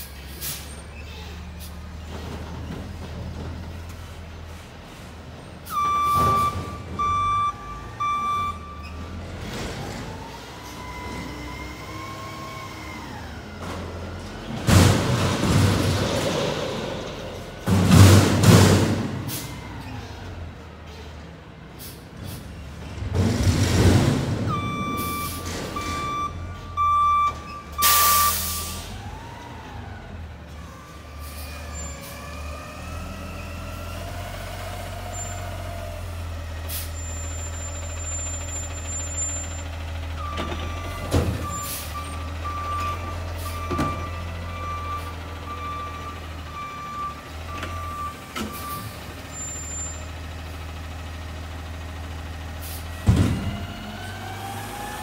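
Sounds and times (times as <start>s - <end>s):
reverse alarm beeping: 5.7s - 9.0s, 24.5s - 28.8s
air brake hisses: 27.8s - 28.9s
garbage truck engine running: 32.4s - 55.0s.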